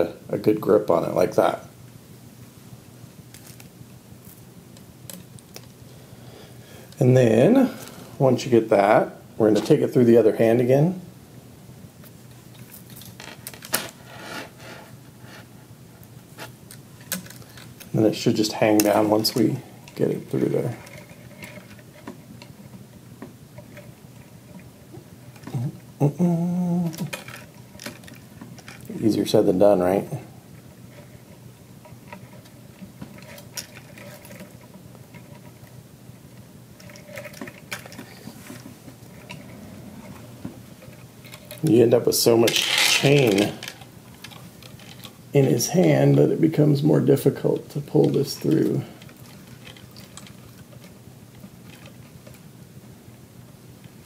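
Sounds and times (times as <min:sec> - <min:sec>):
low steady hum: 0:00.0 - 0:54.0
small chain clinking and scraping: 0:42.4 - 0:45.2.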